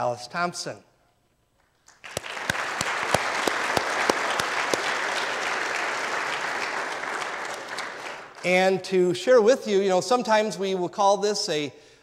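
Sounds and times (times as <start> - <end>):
congregation clapping: 1.6 - 9.0
loud single claps: 1.9 - 8.4.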